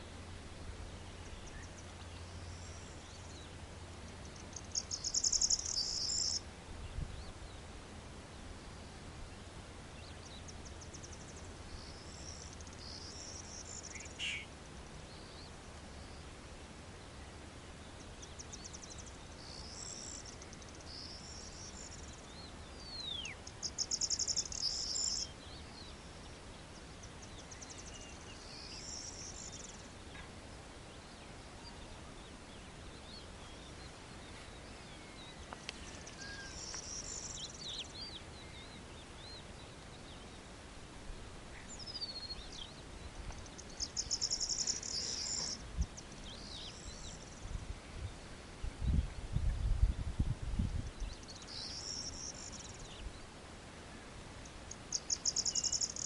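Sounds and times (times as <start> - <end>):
thin whistled bird calls: 4.3 - 6.4, 10.0 - 14.5, 18.1 - 26.0, 27.0 - 30.3, 32.9 - 40.4, 41.5 - 47.4, 51.0 - 53.2, 54.4 - 56.0.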